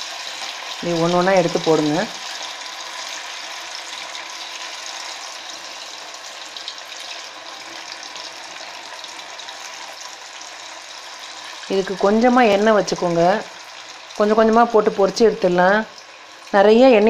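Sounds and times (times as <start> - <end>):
chicken deep-frying in oil: 0.0 - 17.0.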